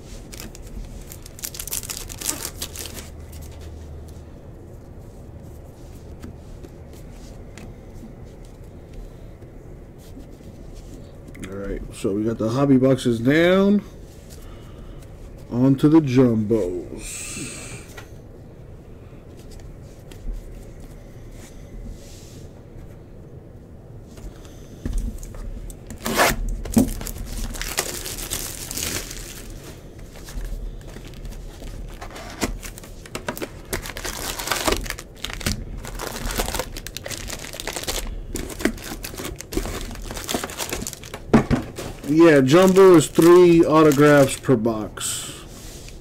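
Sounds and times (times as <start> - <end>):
foil packs tearing and crinkling: 0.1 - 3.6, 25.9 - 44.6.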